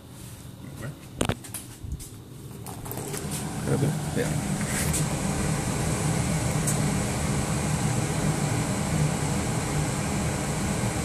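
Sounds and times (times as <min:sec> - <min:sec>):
fan humming with air rush: 0:00.0 - 0:11.0.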